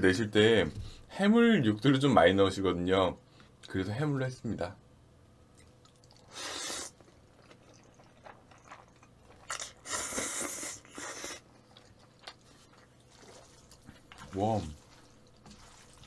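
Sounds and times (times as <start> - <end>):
wet chewing clicks: 5.5 - 16.0
person slurping noodles: 6.2 - 7.0, 9.4 - 11.5, 12.5 - 16.0.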